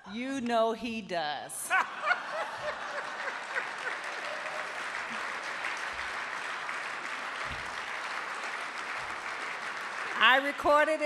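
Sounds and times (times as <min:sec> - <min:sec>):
audience laughter: 0:01.7 - 0:04.7
audience applauding: 0:02.0 - 0:11.0.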